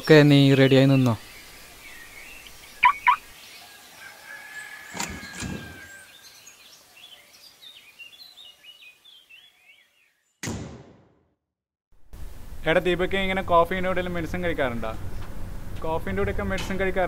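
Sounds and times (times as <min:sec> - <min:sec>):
small birds chirping: 0:00.0 - 0:10.4.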